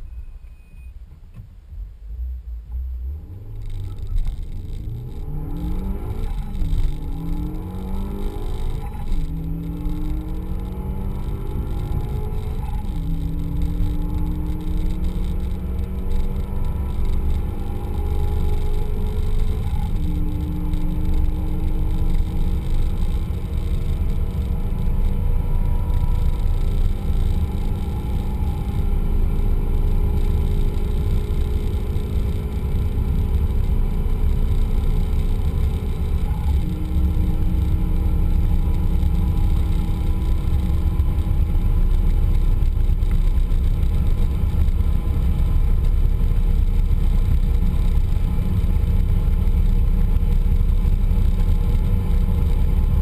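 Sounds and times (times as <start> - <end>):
road and wind rumble: 0.0 - 53.0
car engine accelerating: 1.1 - 53.0.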